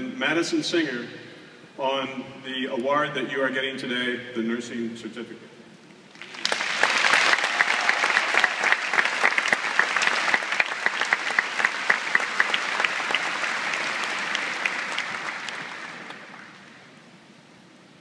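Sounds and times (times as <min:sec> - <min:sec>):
large audience applauding: 0:06.1 - 0:16.9.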